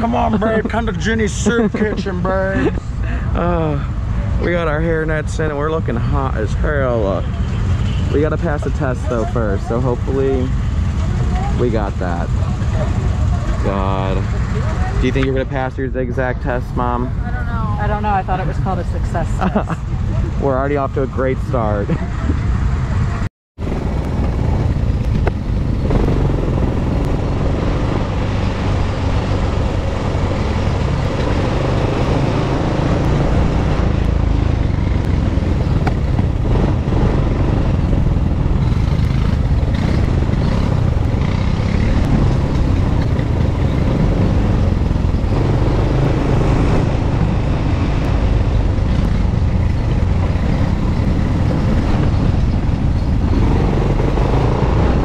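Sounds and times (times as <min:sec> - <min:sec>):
quad bike engine running: 0:23.6 - 0:55.0.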